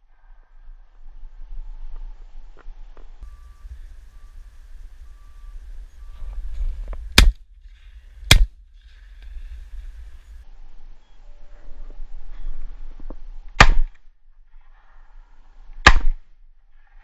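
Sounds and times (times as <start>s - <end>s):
low rumble: 0.0s - 15.7s
shotgun shots: 7.2s - 7.4s, 8.3s - 8.5s, 13.6s - 14.0s, 15.8s - 16.2s.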